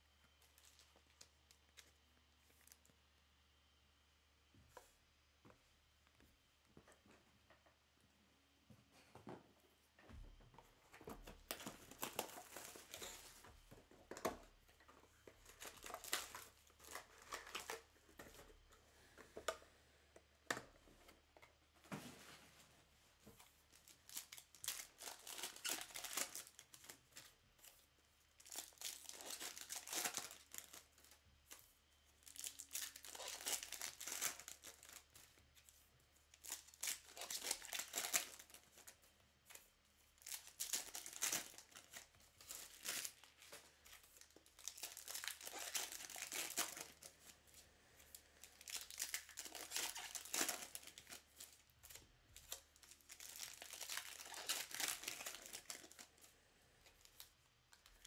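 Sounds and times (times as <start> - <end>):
foil wrappers tearing and crinkling: 11.4 - 13.4, 15.4 - 17.9, 23.7 - 27.4, 28.4 - 31.6, 32.2 - 35.7, 36.3 - 39.0, 40.2 - 47.4, 48.4 - 56.3.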